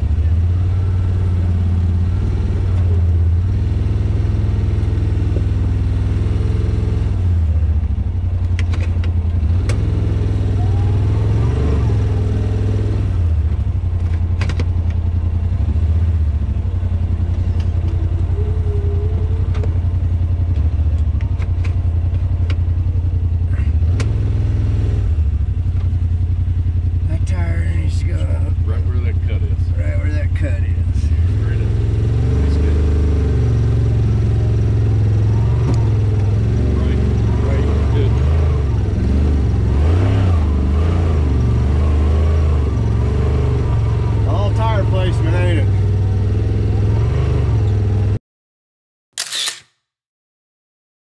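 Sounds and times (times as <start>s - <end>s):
engine running at low speed: 0.0s - 48.2s
sharp knocks and clatter: 14.0s - 15.0s.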